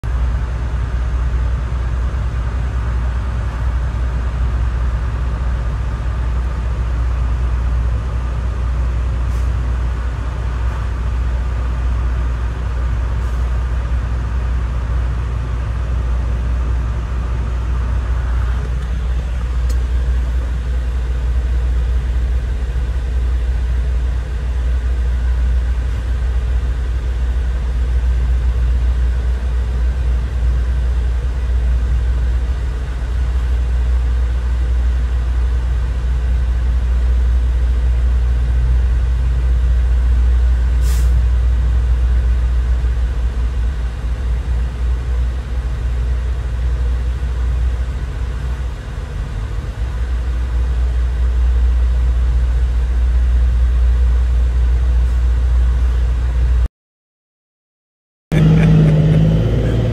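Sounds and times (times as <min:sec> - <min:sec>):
diesel truck engine rumbling: 0:00.0 - 0:56.7, 0:58.3 - 0:59.9.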